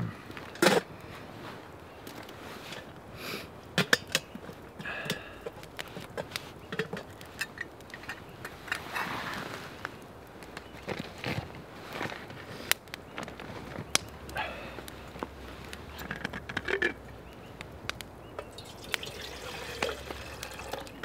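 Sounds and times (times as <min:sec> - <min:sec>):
wood fire crackling and popping: 0:00.2 - 0:21.0
clothing rustle: 0:08.6 - 0:10.0
metal pot and lid clinking: 0:18.5 - 0:20.9.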